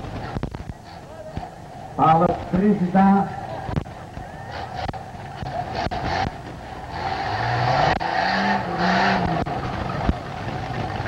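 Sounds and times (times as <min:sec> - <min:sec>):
truck engine revving: 0:03.3 - 0:11.0.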